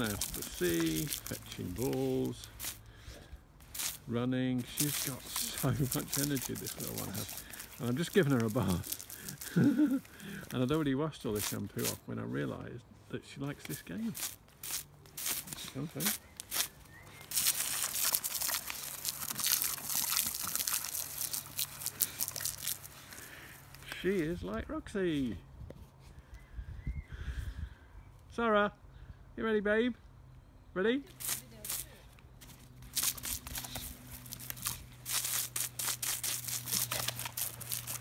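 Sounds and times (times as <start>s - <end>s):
hose water spraying and splashing: 0.0s - 10.7s, 11.3s - 12.0s, 13.6s - 24.1s, 31.2s - 31.9s, 32.8s - 38.0s.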